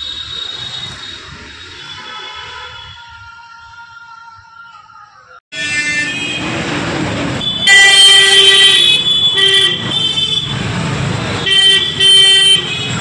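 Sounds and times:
road traffic: 0:00.0 - 0:03.7, 0:04.7 - 0:13.0
vehicle horns honking: 0:01.7 - 0:03.0, 0:05.5 - 0:06.6, 0:07.3 - 0:13.0.

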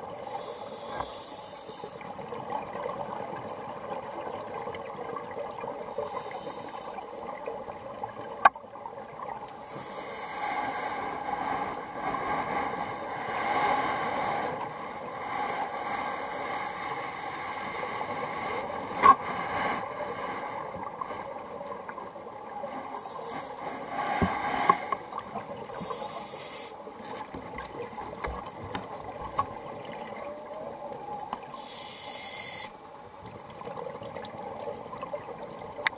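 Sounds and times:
regulator hissing inhalation: 0:00.2 - 0:02.0, 0:06.0 - 0:07.4, 0:09.6 - 0:11.2, 0:22.9 - 0:23.9, 0:25.8 - 0:26.8, 0:31.6 - 0:32.8.

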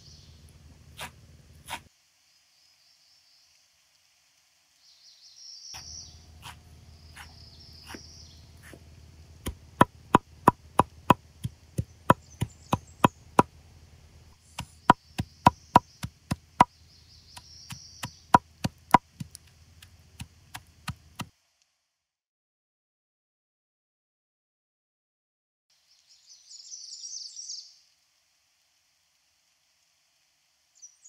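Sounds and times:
knife chopping herbs on wooden board: 0:06.4 - 0:06.6, 0:07.2 - 0:08.0, 0:08.6 - 0:08.8, 0:09.5 - 0:13.5, 0:17.4 - 0:21.3.

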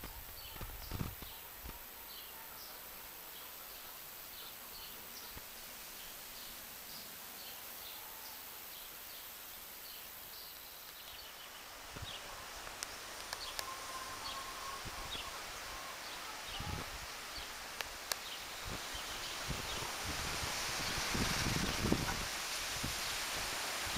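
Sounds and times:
wind buffeting microphone: 0:00.0 - 0:01.3, 0:18.6 - 0:23.9
small birds chirping: 0:00.0 - 0:19.9
leaves rustling: 0:00.0 - 0:23.9
wind hiss: 0:00.0 - 0:23.9.

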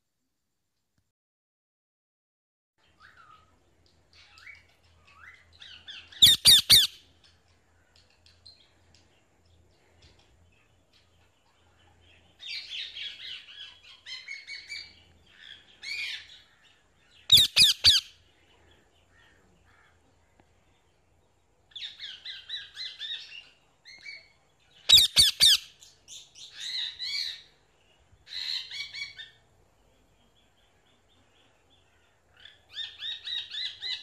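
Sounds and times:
parrot chattering calls: 0:06.2 - 0:07.0, 0:17.3 - 0:18.1, 0:24.9 - 0:25.7.

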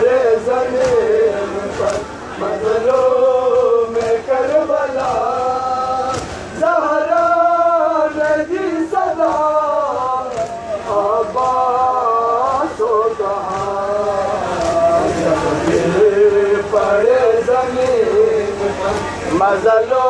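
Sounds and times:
men chanting in unison: 0:00.0 - 0:20.0
hands slapping chests: 0:05.0 - 0:05.4, 0:06.1 - 0:06.4, 0:09.2 - 0:11.7.

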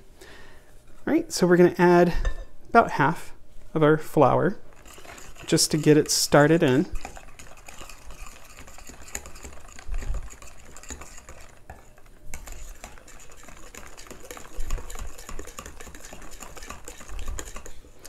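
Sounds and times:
utensil scraping bowl: 0:04.7 - 0:18.0.

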